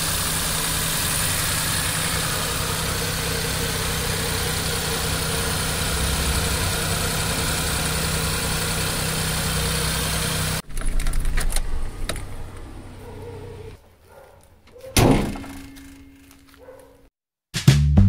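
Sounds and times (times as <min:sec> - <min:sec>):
petrol engine idling: 0:00.0 - 0:13.8.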